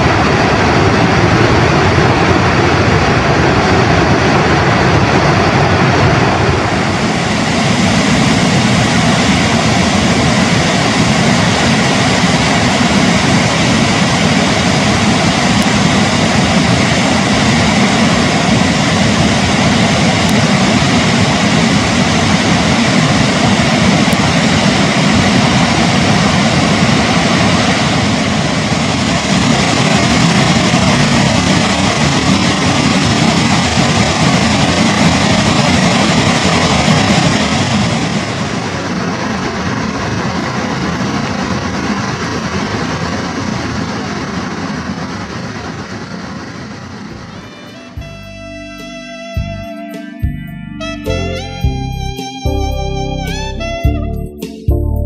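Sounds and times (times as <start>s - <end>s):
waterfall rushing: 0.0s - 39.2s.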